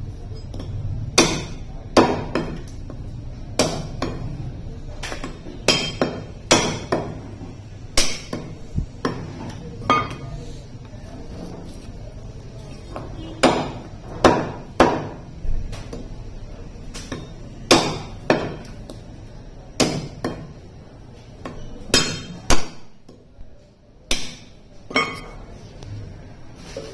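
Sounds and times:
cleaver chopping meat and bone: 1.1s - 2.8s, 3.6s - 4.3s, 5.0s - 7.2s, 8.0s - 9.2s, 13.2s - 16.1s, 16.9s - 19.0s, 19.7s - 20.6s, 21.4s - 23.0s, 24.1s - 24.6s.

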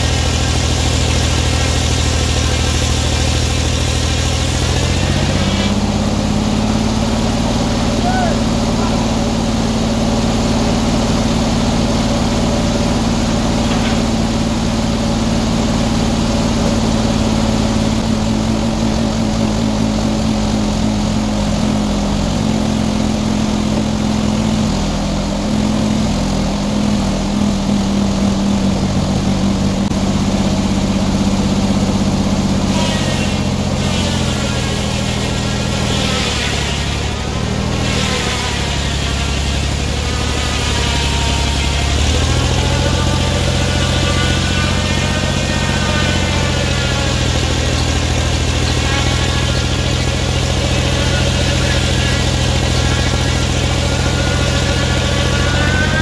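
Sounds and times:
sawmill engine running: 0.0s - 56.0s
wavering high whine: 39.8s - 56.0s.

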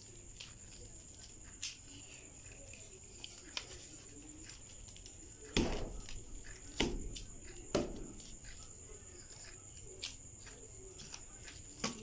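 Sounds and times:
stick knocking on foam panels: 5.5s - 6.0s, 6.7s - 8.2s.

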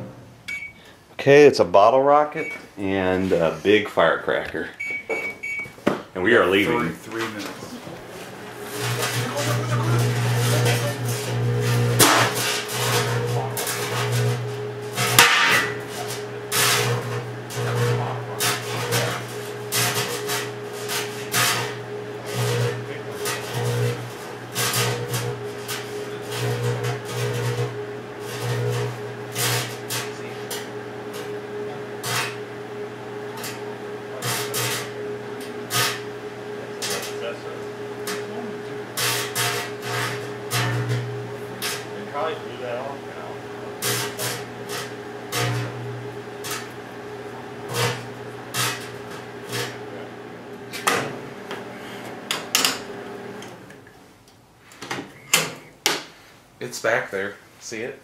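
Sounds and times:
microwave oven humming: 4.8s - 53.9s
crackling sparking bursts: 8.4s - 31.3s, 43.8s - 46.8s, 47.6s - 49.8s.

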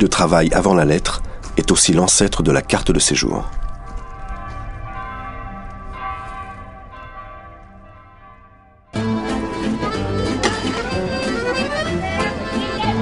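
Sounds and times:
bell-like chimes: 2.6s - 9.6s
lively accordion music: 9.0s - 13.0s.

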